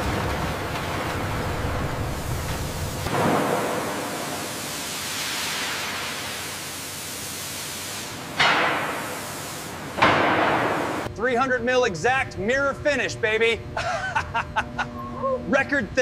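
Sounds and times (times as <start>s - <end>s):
water and steam hissing: 0.8s - 11.1s.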